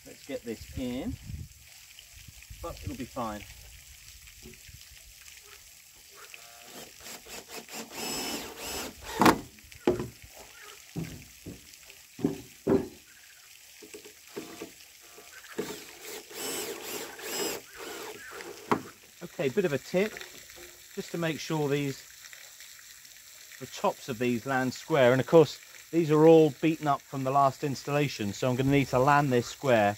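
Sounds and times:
wooden knocks and bumps: 9.1s - 10.2s, 11.0s - 13.0s
timber scraping: 14.3s - 14.8s, 15.5s - 19.0s.

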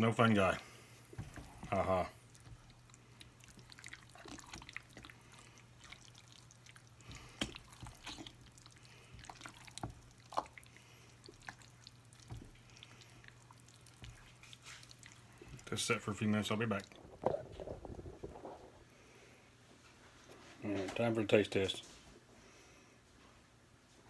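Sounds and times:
spatula stirring thick dip: 0.0s - 18.5s
faint steady hum: 0.0s - 24.0s.

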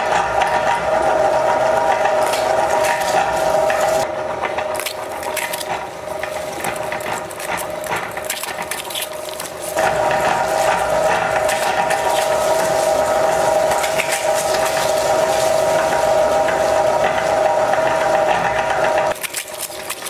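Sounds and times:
meat grinder whine: 0.0s - 20.0s
crisp shells crackling: 4.7s - 16.5s, 19.1s - 20.0s.

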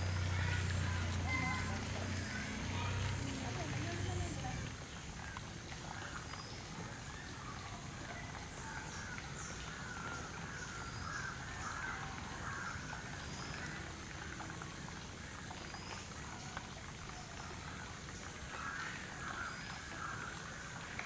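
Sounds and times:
outdoor background noise: 0.0s - 21.0s
birds calling: 8.4s - 13.9s.

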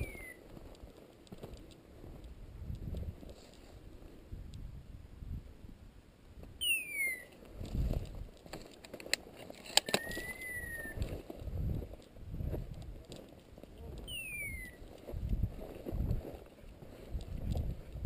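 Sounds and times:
footsteps through dry grass: 0.0s - 4.0s, 7.4s - 18.0s
held whistle-like tone: 6.6s - 7.3s, 9.9s - 11.0s, 14.1s - 14.8s
sharp clicks: 6.6s - 11.1s.

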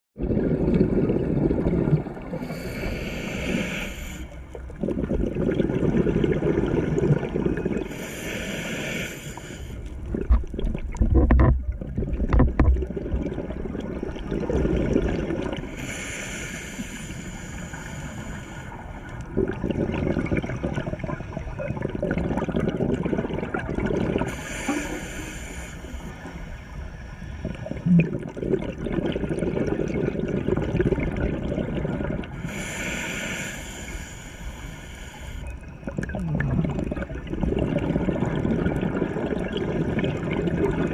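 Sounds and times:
gurgling rush of exhaled bubbles: 0.2s - 3.9s, 4.5s - 8.3s, 9.9s - 16.0s, 19.2s - 25.2s, 27.4s - 32.8s, 35.8s - 40.9s
regulator hissing inhalations: 2.4s - 4.4s, 7.9s - 9.8s, 15.8s - 19.0s, 24.3s - 27.1s, 32.4s - 35.6s.

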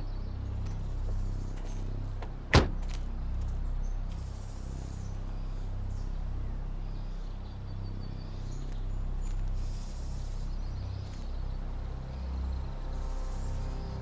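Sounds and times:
low steady hum: 0.0s - 14.0s
car door slamming: 2.5s - 2.9s.

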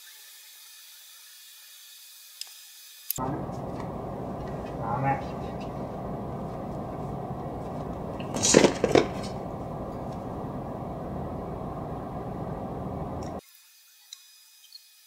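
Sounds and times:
low room noise: 3.2s - 13.4s.

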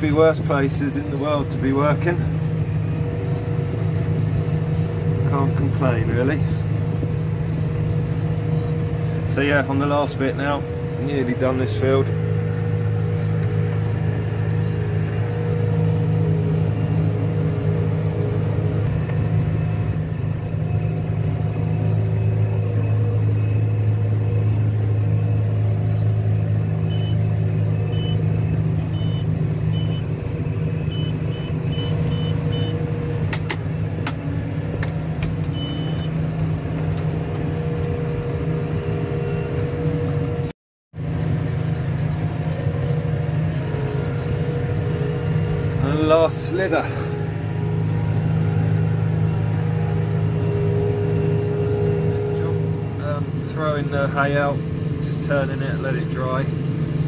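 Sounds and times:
tractor engine droning: 0.0s - 57.0s
short high beeps: 26.9s - 27.2s, 29.0s - 30.0s, 30.9s - 32.8s, 35.5s - 36.2s.

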